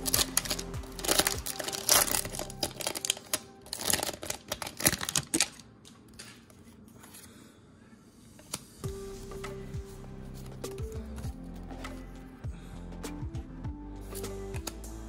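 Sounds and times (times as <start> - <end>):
foil wrapper crinkling and tearing: 0.0 - 6.5.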